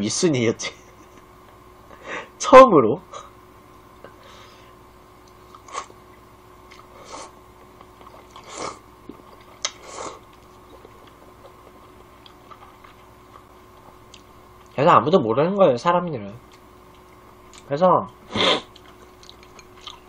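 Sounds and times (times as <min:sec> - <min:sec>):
faint steady hum: 0:00.0 - 0:20.0
man slurping and chewing noodles: 0:05.3 - 0:06.0, 0:06.7 - 0:14.7, 0:18.3 - 0:20.0.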